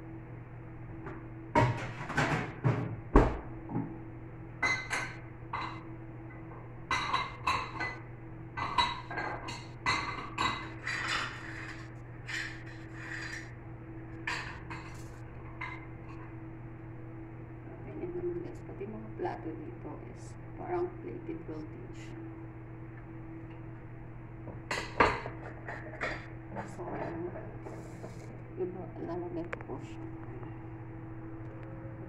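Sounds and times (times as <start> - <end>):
plates clinking and clattering: 6.9 - 8.0, 8.6 - 13.5, 14.2 - 15.0, 24.7 - 28.3.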